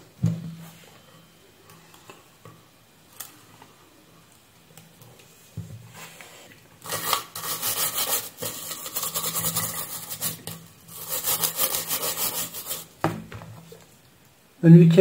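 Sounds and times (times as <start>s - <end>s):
bristle brush scrubbing circuit board: 6.9s - 12.9s.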